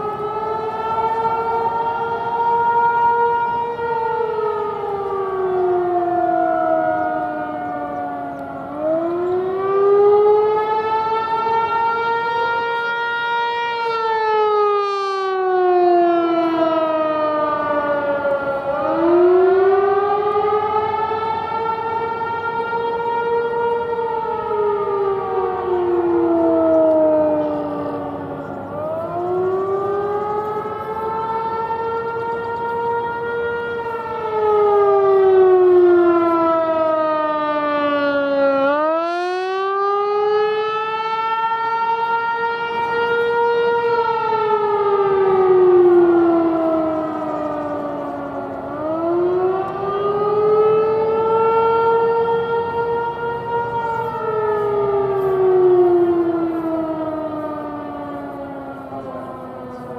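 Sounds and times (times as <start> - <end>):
warning siren wailing: 0.0 - 59.9.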